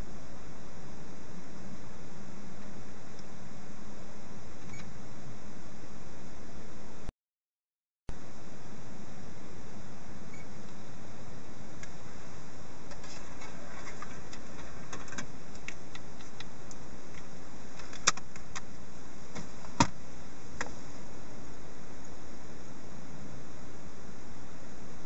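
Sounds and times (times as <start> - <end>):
steady hiss: 8.1 - 25.0.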